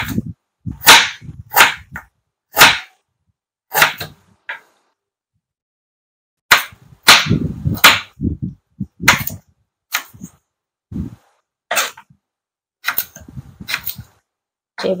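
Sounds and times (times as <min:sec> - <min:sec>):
knife chopping on cutting board: 0:00.8 - 0:03.0, 0:03.7 - 0:04.7, 0:06.5 - 0:08.2, 0:09.1 - 0:10.3, 0:12.8 - 0:14.1.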